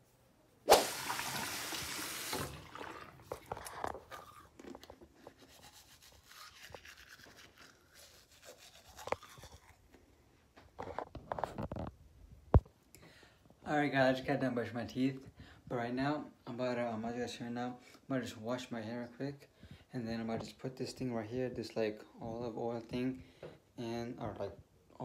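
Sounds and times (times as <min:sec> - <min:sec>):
toothbrush scrubbing: 0:03.3 - 0:09.9.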